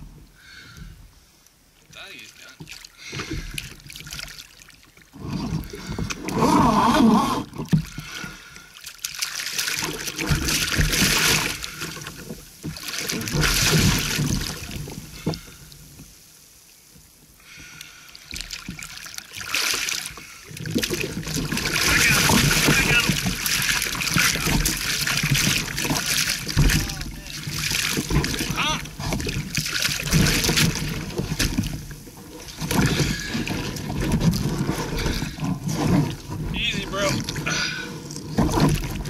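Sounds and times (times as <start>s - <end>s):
fish splashing at water surface: 7.5s - 15.7s, 17.6s - 36.4s.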